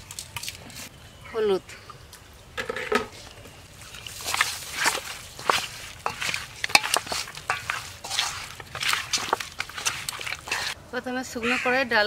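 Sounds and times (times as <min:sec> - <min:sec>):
hand squelching fish in bowl: 0:03.6 - 0:10.8.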